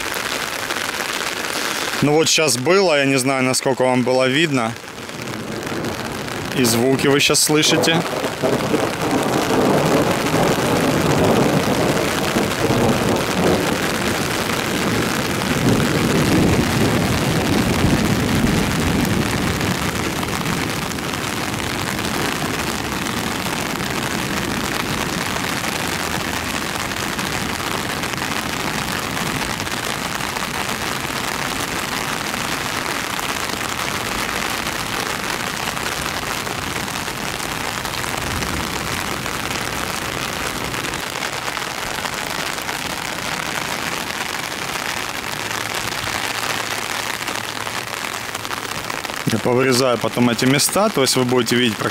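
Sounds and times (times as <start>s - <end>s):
heavy rain: 0.0s - 51.9s
thunder rolling: 4.9s - 46.4s.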